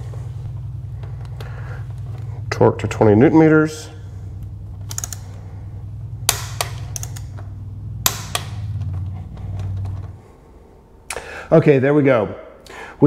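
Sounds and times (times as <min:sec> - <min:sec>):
low steady hum: 0:00.0 - 0:13.0
torque wrench clicks: 0:04.8 - 0:05.4, 0:06.3 - 0:07.4.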